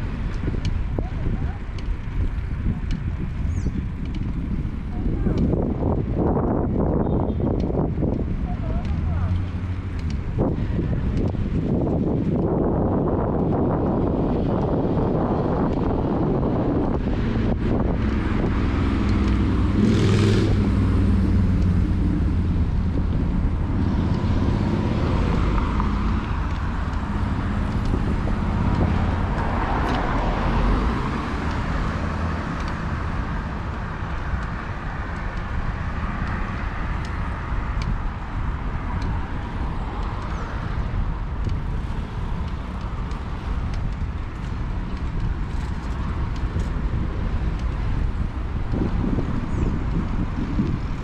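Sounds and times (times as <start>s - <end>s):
road traffic passing: 0.0s - 51.0s
steady low rumble: 0.0s - 51.0s
vehicle engine passing: 16.2s - 37.7s.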